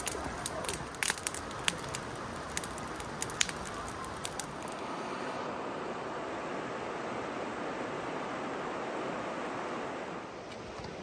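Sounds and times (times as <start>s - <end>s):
campfire crackling and popping: 0.0s - 4.8s
flowing water rushing: 0.0s - 11.0s.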